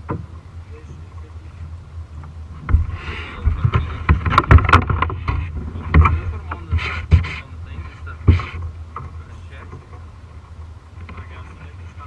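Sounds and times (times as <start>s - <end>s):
knocks and thumps on plastic kayak: 0.0s - 0.5s, 2.2s - 10.1s.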